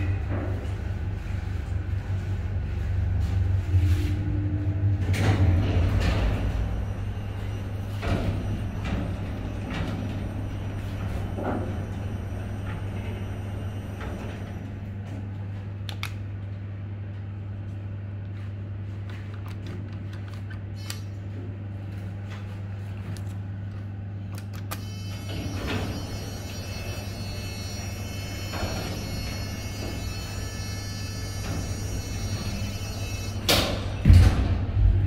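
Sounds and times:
elevator hum: 0:00.0 - 0:35.0.

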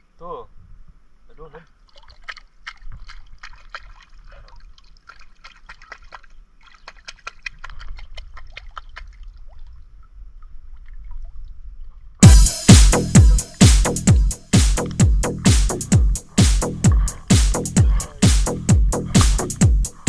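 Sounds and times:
seawater splashing and dripping: 0:01.7 - 0:12.1, 0:16.4 - 0:20.0.

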